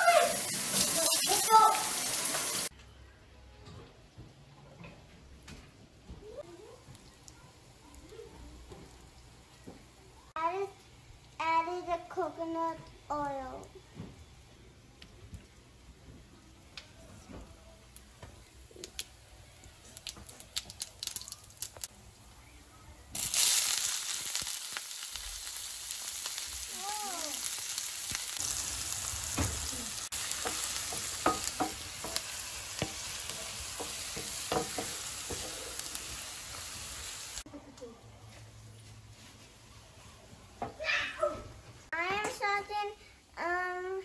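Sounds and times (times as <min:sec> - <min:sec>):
onions sizzling in hot oil: 0:00.0 - 0:02.7, 0:18.0 - 0:22.2, 0:23.1 - 0:37.4
wooden spatula knocking: 0:30.4 - 0:35.6.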